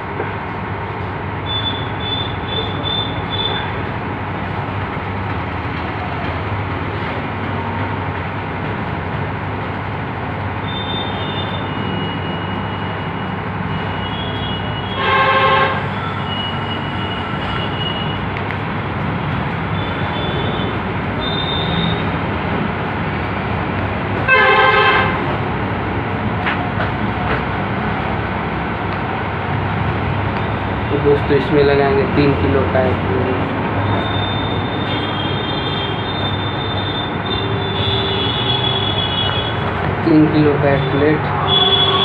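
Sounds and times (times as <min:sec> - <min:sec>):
steady background noise: 0:00.0 - 0:42.0
vehicle horn honks: 0:13.9 - 0:18.2, 0:24.3 - 0:25.2, 0:34.0 - 0:39.6, 0:41.4 - 0:42.0.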